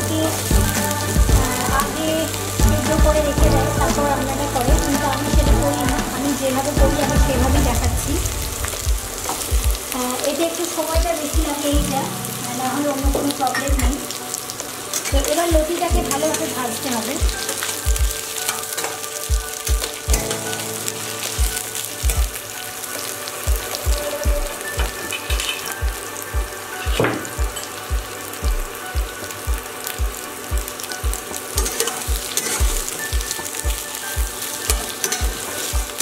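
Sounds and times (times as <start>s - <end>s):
food sizzling in oil: 0.0s - 36.0s
low thumps: 6.8s - 10.0s.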